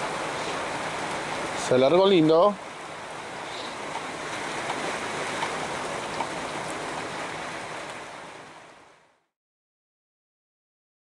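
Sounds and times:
heavy rain: 0.0s - 9.2s
raindrop ticks: 3.8s - 7.1s.

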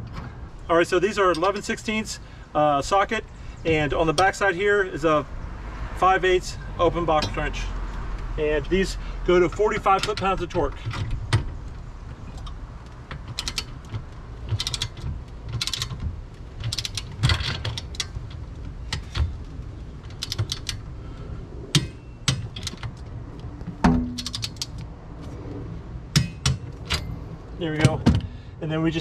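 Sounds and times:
socket ratchet clicking: 12.3s - 20.9s, 24.1s - 24.8s
sharp knock: 23.8s - 24.3s.

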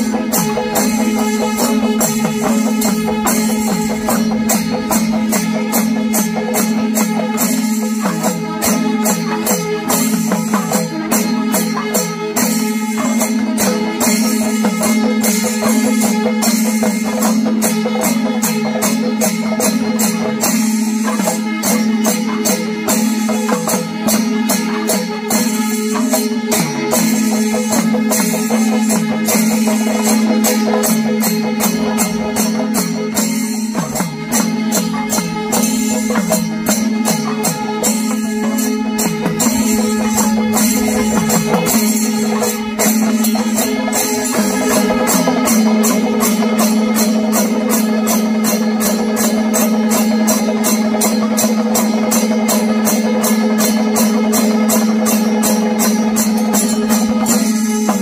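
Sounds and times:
steady droning tone: 0.0s - 7.3s, 31.5s - 46.4s
drumming: 0.0s - 18.2s, 26.1s - 50.2s
cymbal clashes: 0.0s - 58.0s.

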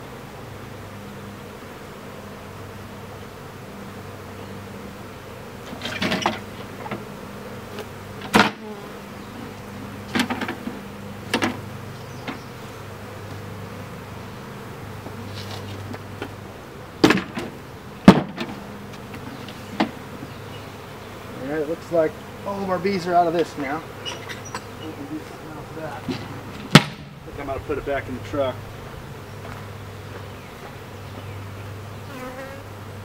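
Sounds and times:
honey bees buzzing: 0.0s - 33.0s
sharp knocks: 18.1s - 18.6s, 26.1s - 27.1s.

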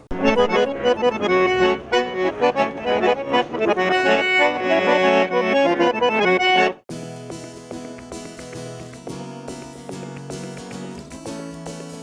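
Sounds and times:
button accordion playing: 0.0s - 9.6s.

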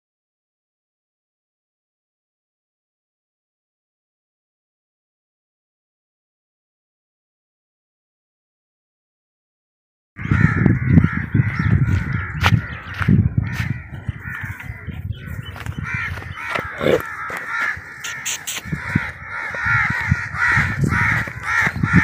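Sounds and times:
chorus of birds calling: 10.2s - 22.0s
running footsteps: 10.2s - 22.0s.

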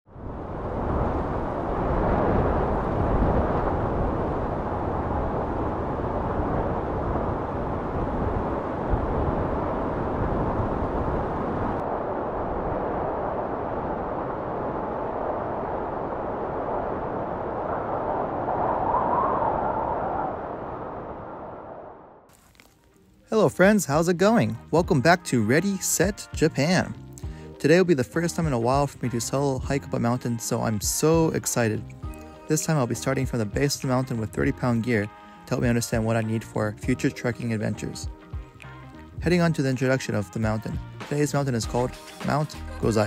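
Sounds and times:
rushing wind: 0.1s - 22.3s.

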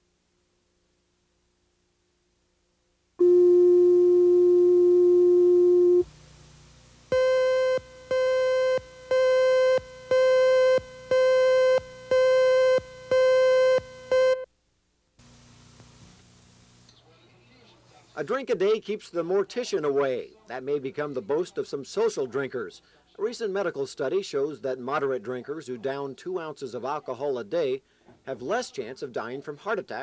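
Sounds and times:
steady low tone: 3.2s - 6.1s.

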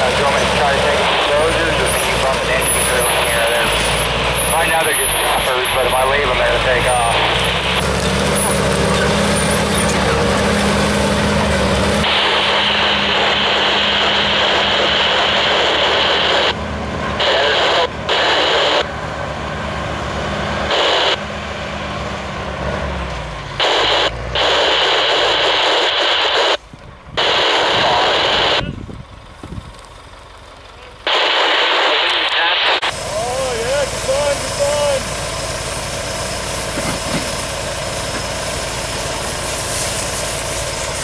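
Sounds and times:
diesel engine running: 0.0s - 41.0s
loud hiss: 12.0s - 16.6s, 31.1s - 41.0s.

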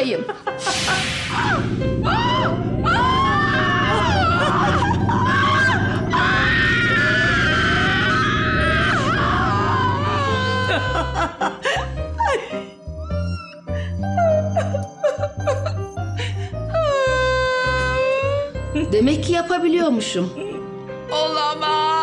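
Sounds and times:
woman screaming: 1.3s - 11.4s.

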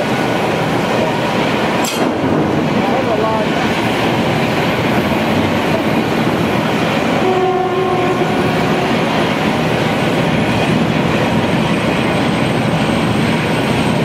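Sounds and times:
loud industrial din: 1.7s - 6.4s
short horn note: 7.2s - 8.9s.

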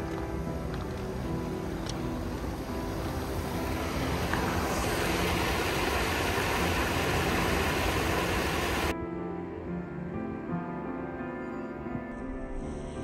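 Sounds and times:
water rushing over rocks: 0.9s - 8.9s.

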